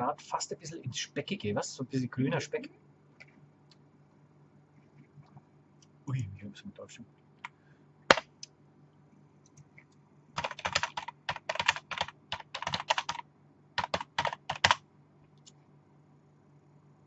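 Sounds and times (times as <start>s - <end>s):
typing on computer keyboard: 10.4s - 13.2s, 13.8s - 14.8s.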